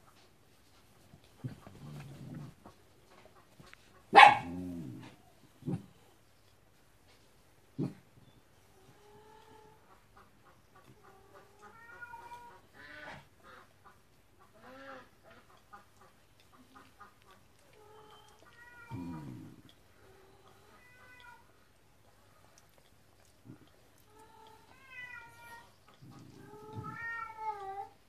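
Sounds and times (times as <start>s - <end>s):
pet whining: 1.2s - 2.8s, 17.4s - 28.0s.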